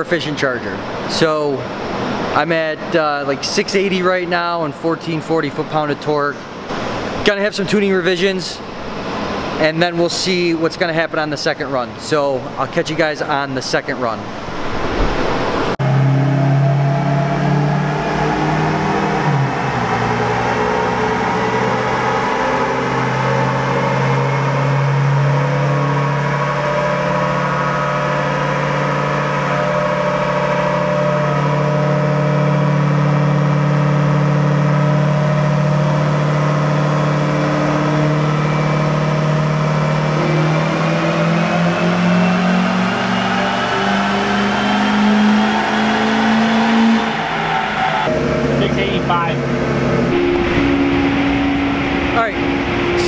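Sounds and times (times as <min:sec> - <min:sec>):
diesel engine running under load: 0:15.4 - 0:47.4, 0:48.1 - 0:53.0
faint high turbo whistle: 0:15.7 - 0:53.0.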